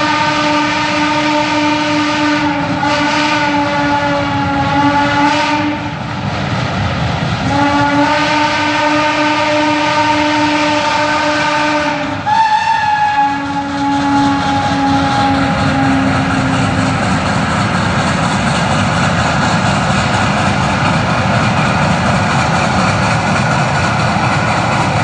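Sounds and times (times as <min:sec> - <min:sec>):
steam whistle blasts: 0:00.0 - 0:06.0, 0:07.5 - 0:16.6
locomotive exhaust chuffing: 0:06.9 - 0:25.0.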